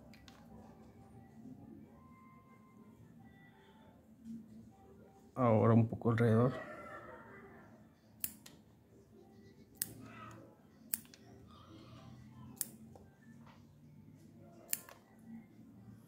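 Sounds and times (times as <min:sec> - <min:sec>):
pruning scissors snipping: 0:09.8 - 0:10.1.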